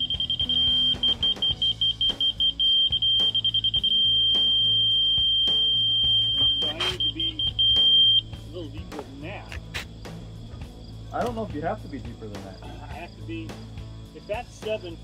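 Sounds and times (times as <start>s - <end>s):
laser receiver beeping: 0.0s - 8.2s.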